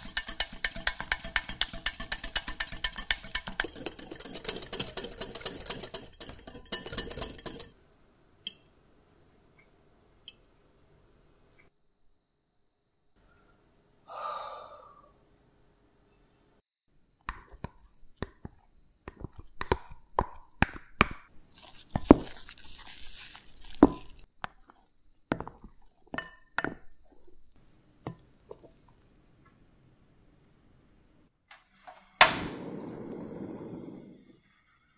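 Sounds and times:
spatula tapping glass dish: 0:00.0 - 0:07.7
soft hiss: 0:27.6 - 0:34.9.

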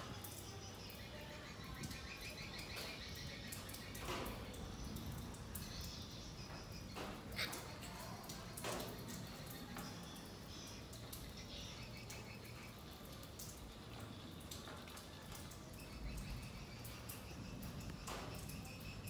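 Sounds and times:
high-pitched chirping chorus: 0:00.0 - 0:14.7.

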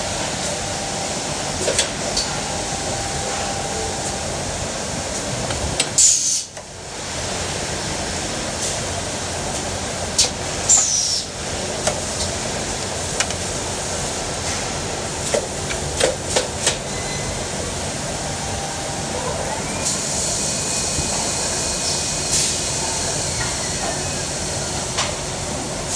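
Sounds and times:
steady machine noise: 0:00.0 - 0:08.0.

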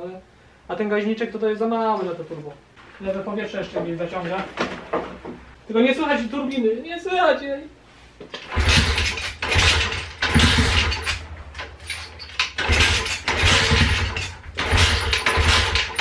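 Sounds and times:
motorbike engine kick-started: 0:08.4 - 0:16.0.

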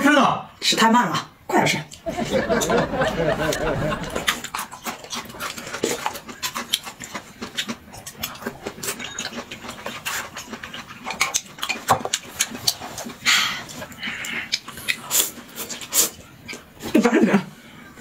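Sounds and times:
wet chewing and smacking: 0:03.5 - 0:17.0.

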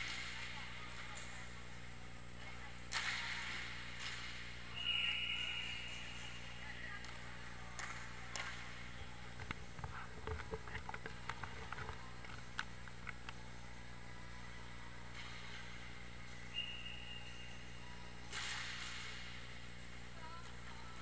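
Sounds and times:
hockey sticks and puck clacking: 0:02.9 - 0:08.8, 0:18.3 - 0:19.4
high whistle blast: 0:04.7 - 0:06.1.

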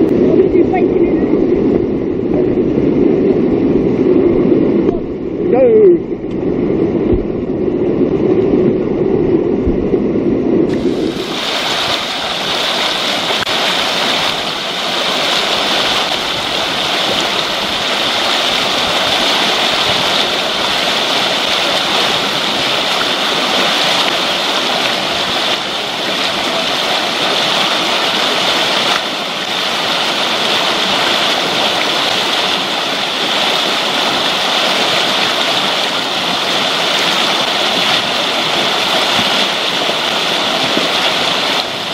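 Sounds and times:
water rushing over rocks: 0:10.7 - 0:41.9.

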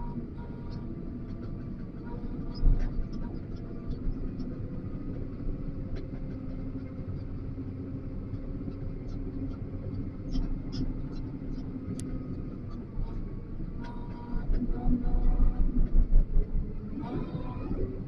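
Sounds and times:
diesel engine running: 0:00.0 - 0:18.0.

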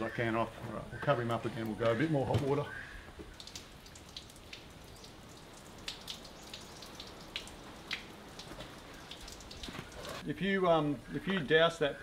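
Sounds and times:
water dripping with soft ticks: 0:01.0 - 0:10.2.

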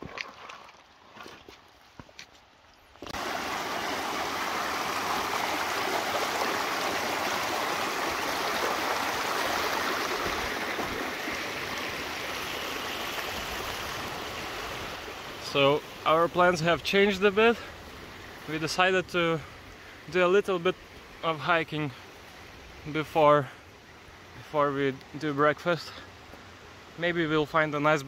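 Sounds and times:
water rushing over rocks: 0:03.0 - 0:18.9.

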